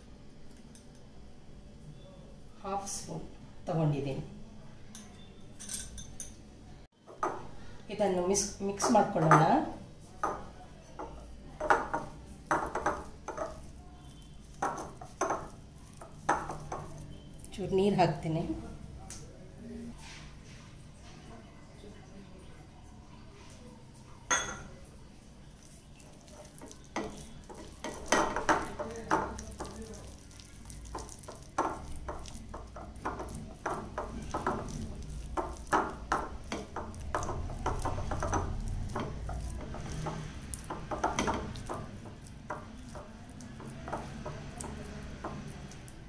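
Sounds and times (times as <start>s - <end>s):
fingers squishing paste: 25.6s - 46.0s.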